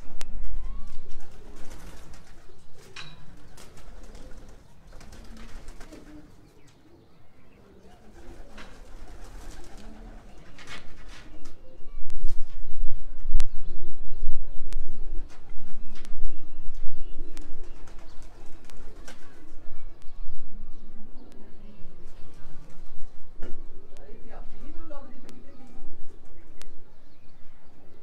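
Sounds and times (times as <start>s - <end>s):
pigeons cooing: 0.4s - 12.0s
low rumble on microphone: 11.9s - 17.6s.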